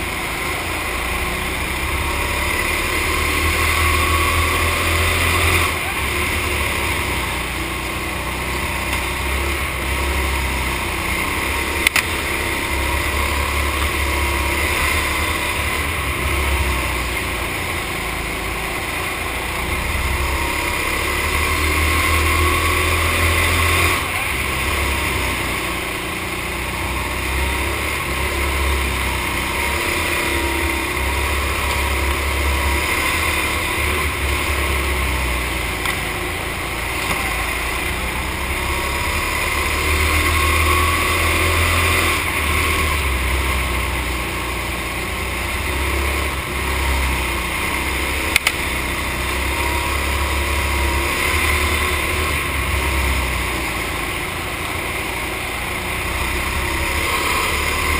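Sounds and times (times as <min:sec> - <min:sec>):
go-kart motor: 0:00.0 - 0:57.9
sharp click: 0:48.3 - 0:48.6.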